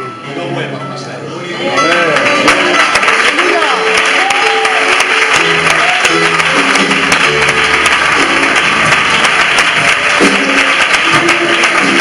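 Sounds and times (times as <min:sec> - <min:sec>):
congregation applause: 0:01.8 - 0:12.0.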